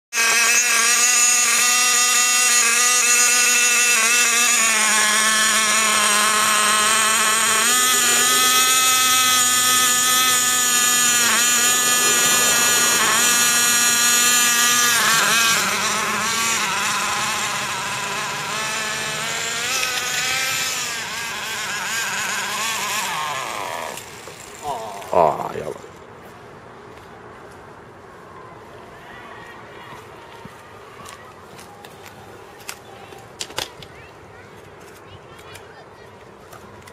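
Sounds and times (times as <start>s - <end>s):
rc car engine running: 0.1s - 26.0s.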